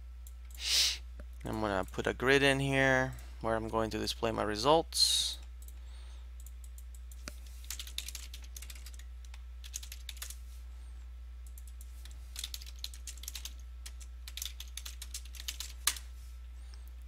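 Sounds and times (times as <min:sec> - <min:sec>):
steady low hum: 0:00.0 - 0:17.0
typing on computer keyboard: 0:07.6 - 0:10.4, 0:11.5 - 0:16.0.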